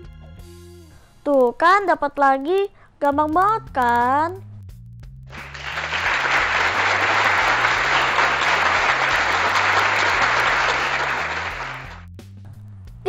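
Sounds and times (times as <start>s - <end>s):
quiet background music: 0.0s - 4.7s
crowd applause: 5.3s - 12.0s.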